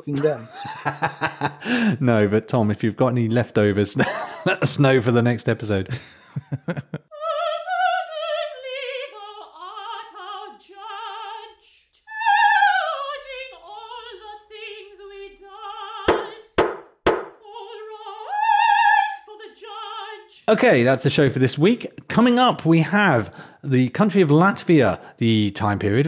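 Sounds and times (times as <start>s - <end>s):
sharp knocks: 16.1s - 17.4s
person singing operatically: 17.5s - 20.4s.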